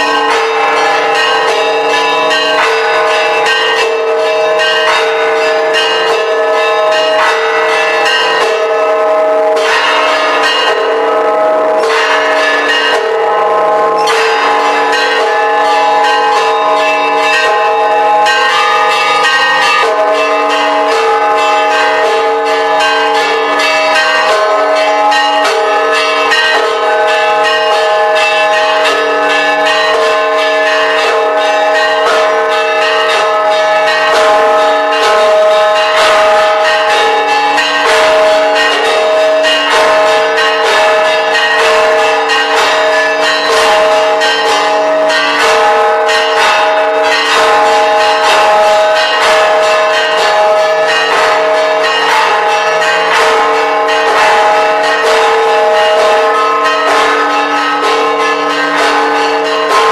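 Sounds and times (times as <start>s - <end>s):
church bells pealing: 0.0s - 59.9s.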